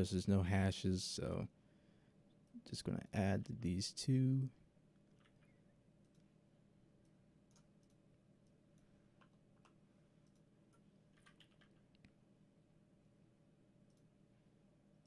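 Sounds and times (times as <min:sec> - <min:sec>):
keyboard and mouse clicks: 0:07.5 - 0:08.6, 0:09.2 - 0:12.2.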